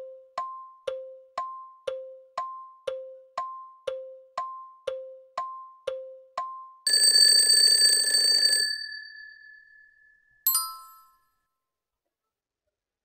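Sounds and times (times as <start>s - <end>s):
high and low ticks: 0.4s - 6.5s
bell ringing: 6.9s - 11.2s
short bright chime: 10.5s - 11.2s.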